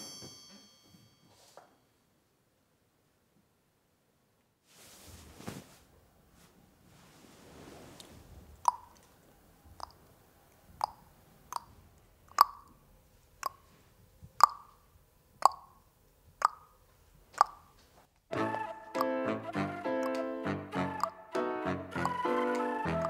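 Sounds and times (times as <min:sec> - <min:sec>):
child making mouth pops: 0:08.7 - 0:09.0, 0:12.3 - 0:12.7, 0:14.4 - 0:14.8, 0:16.4 - 0:16.7, 0:17.3 - 0:17.7.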